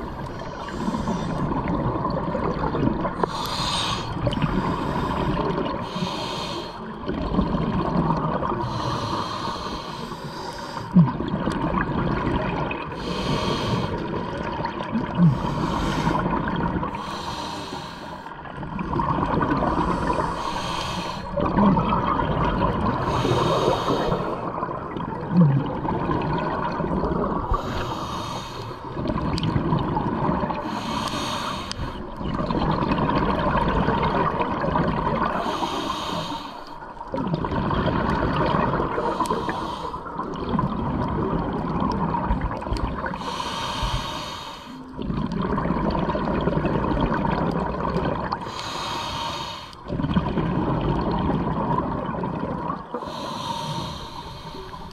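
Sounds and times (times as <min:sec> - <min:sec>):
regulator breath hiss: 0:05.9 - 0:06.8, 0:20.3 - 0:21.3, 0:27.6 - 0:28.8, 0:30.7 - 0:32.0, 0:35.4 - 0:36.7, 0:39.1 - 0:40.0, 0:43.2 - 0:44.8, 0:48.5 - 0:49.8, 0:53.0 - 0:54.9
exhaust bubbles rumbling: 0:18.4 - 0:20.5, 0:21.2 - 0:27.6, 0:32.1 - 0:35.5, 0:37.0 - 0:39.2, 0:40.1 - 0:43.3, 0:44.9 - 0:48.5, 0:49.8 - 0:53.4.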